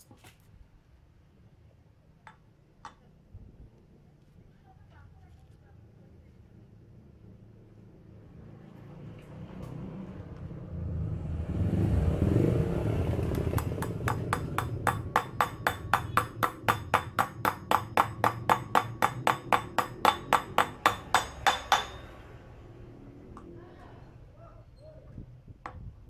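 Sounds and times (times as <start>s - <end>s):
hammer blows on wheel hub: 13.5s - 22.3s.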